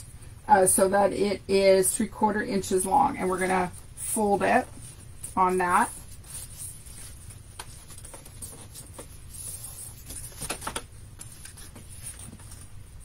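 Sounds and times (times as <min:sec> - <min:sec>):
paper crinkles and taps: 0:07.5 - 0:09.1, 0:10.0 - 0:12.6.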